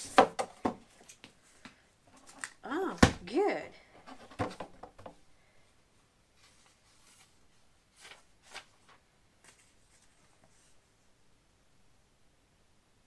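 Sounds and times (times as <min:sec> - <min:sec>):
paper sheets rustling: 0:06.4 - 0:10.8.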